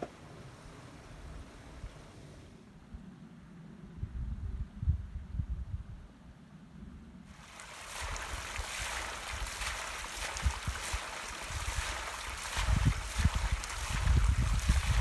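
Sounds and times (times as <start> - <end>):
water splashing onto stones: 7.3 - 15.0
wind buffeting microphone: 7.4 - 15.0.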